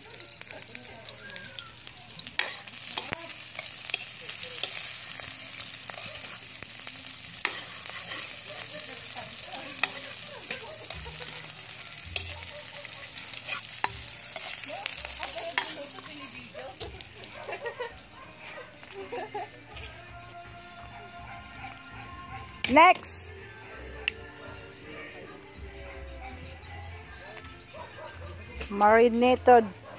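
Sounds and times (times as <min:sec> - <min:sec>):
garlic and onion sizzling in oil: 0:00.0 - 0:29.9
spatula scraping metal wok: 0:02.3 - 0:17.3.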